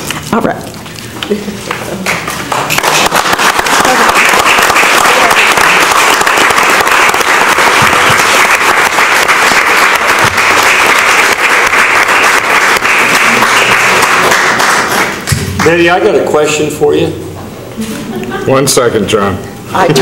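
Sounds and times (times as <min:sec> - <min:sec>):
audience applauding: 0:01.6 - 0:16.1.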